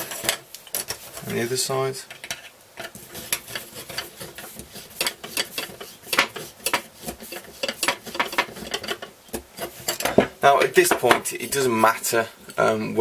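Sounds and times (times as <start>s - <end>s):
tools clicking and scraping on metal: 2.0s - 11.2s.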